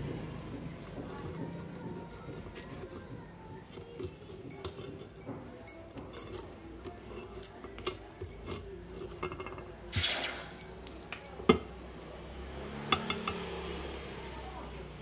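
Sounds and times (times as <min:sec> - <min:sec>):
metal tongs clinking: 0:00.3 - 0:09.8, 0:10.5 - 0:12.1
hot metal hissing in water: 0:09.9 - 0:10.7.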